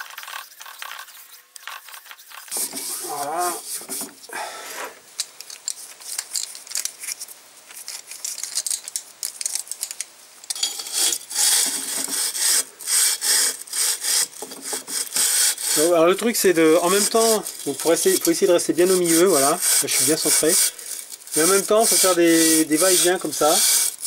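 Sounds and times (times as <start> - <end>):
hand scraping metal bore: 0.0 - 5.0, 10.5 - 24.0.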